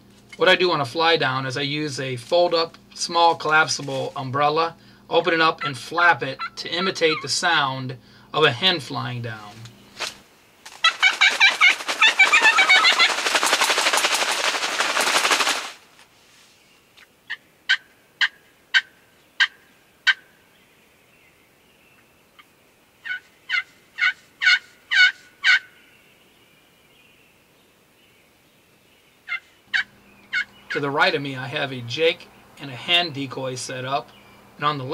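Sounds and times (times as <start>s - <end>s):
turkey yelps: 5.4s - 7.4s, 10.7s - 13.6s, 17.3s - 20.3s, 23.0s - 25.8s, 29.3s - 31.0s
umbrella flapping rapidly: 10.0s - 16.0s.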